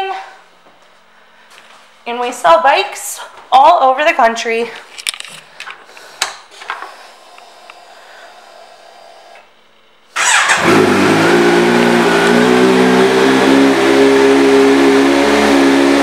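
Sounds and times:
ignition whirring and clicks: 5.0s - 13.3s
motorcycle engine starting and idling: 6.8s - 16.0s.

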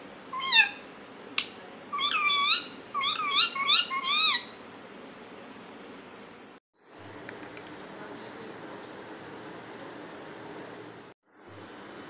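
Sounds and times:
parakeet warbling calls: 0.3s - 0.9s, 1.9s - 4.6s.

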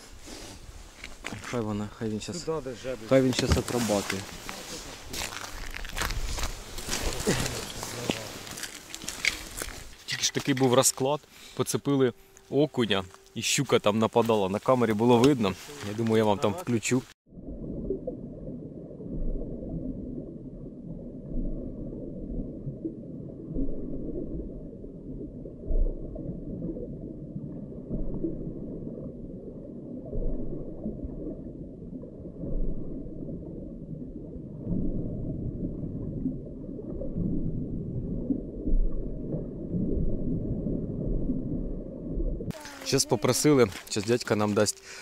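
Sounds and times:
muffled underwater rumble: 17.3s - 42.7s.

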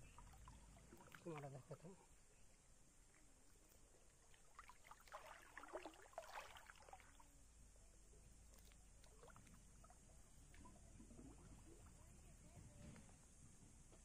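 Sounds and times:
river water splashing: 0.0s - 2.0s, 3.1s - 7.4s, 8.4s - 12.4s.

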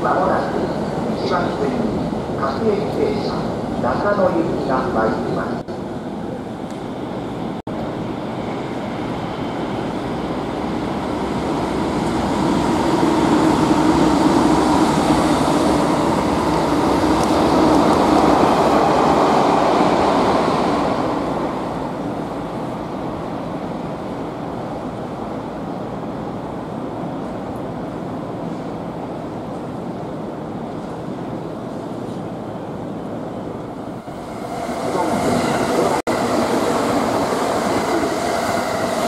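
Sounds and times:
train wheels on rails: 6.6s - 23.1s, 33.5s - 39.0s.

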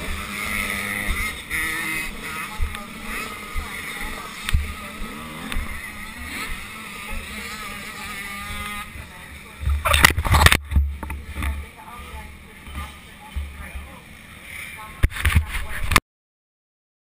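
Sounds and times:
low thumps and clicks: 0.0s - 7.3s, 9.6s - 11.7s
two-stroke dirt bike engine: 0.0s - 16.0s.

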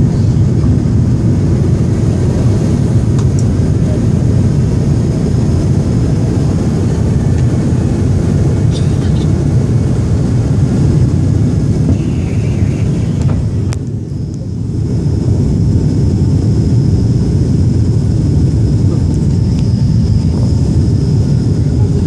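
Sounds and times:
airliner engine rumble: 0.0s - 22.0s
high whine: 0.0s - 22.0s.

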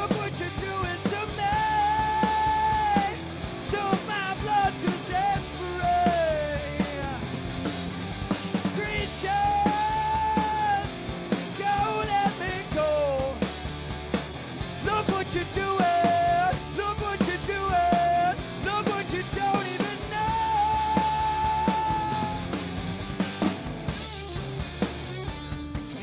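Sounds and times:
man singing lead: 0.0s - 7.4s, 8.6s - 13.5s, 14.7s - 22.8s
rock band playing live: 0.0s - 26.0s.

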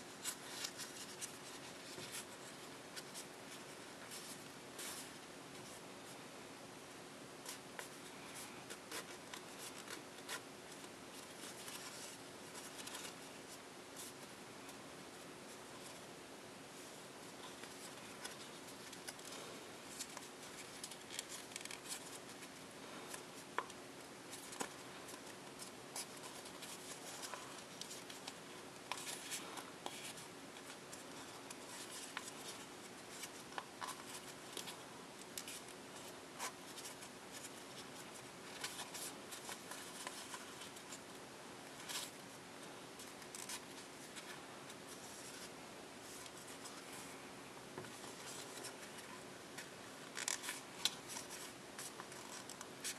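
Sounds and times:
faint steady hum: 0.0s - 52.9s
paper crinkling and rustling: 0.1s - 5.8s, 16.8s - 42.3s, 43.0s - 47.2s, 47.8s - 52.9s.

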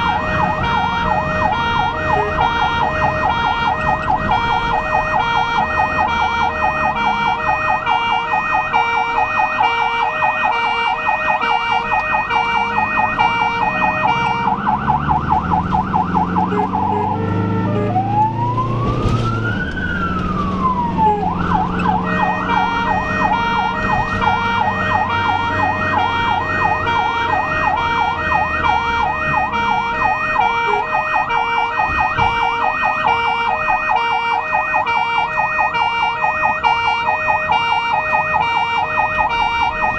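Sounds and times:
ambulance siren yelping and wailing: 0.0s - 39.9s
vehicle engine and road rumble: 0.0s - 39.9s.

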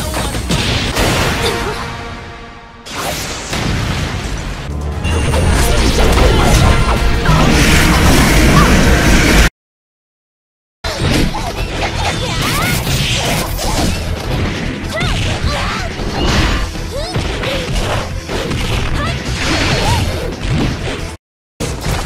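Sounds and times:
game music: 0.0s - 9.5s
hits smashes and whooshes: 2.9s - 9.5s.

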